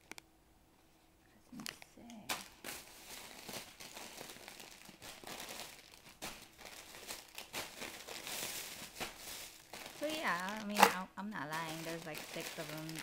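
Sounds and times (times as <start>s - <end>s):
plastic wrappers crinkling: 1.6s - 13.0s
sharp crackles: 3.4s - 13.0s.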